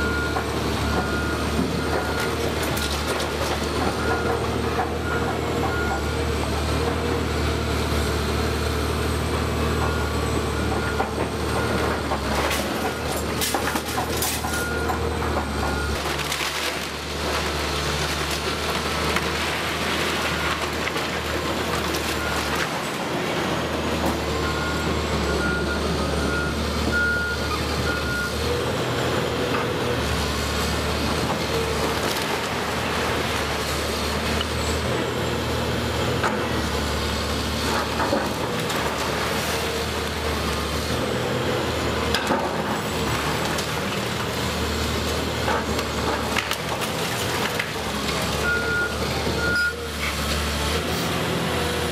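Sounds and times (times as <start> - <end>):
excavator diesel engine: 0.0 - 51.9
crunching of brick and timber: 11.9 - 24.2.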